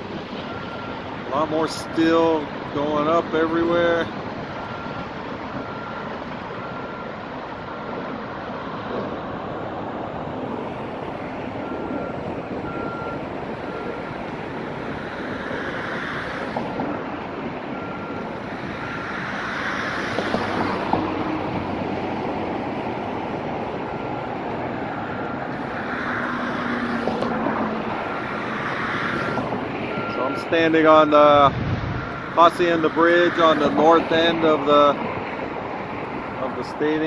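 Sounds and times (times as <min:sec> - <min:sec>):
road traffic rushing: 0:00.0 - 0:37.0
reversing alarm beeping: 0:00.4 - 0:07.8, 0:10.8 - 0:22.2, 0:24.8 - 0:27.2, 0:28.0 - 0:31.2.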